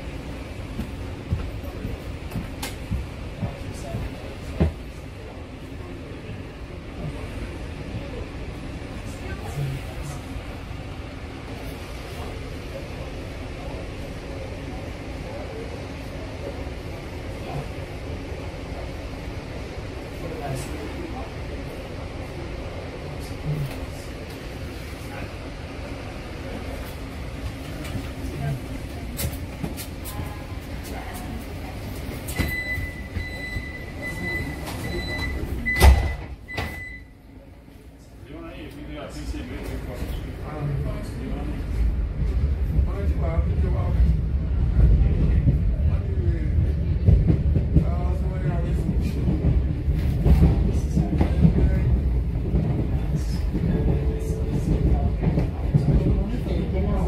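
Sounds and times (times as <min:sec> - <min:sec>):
train low rumble: 0:00.0 - 0:57.0
train doors shutting thud: 0:34.6 - 0:36.9.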